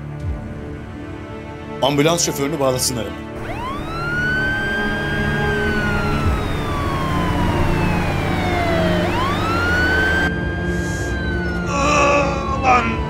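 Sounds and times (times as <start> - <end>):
emergency vehicle siren wailing: 3.4 - 13.0.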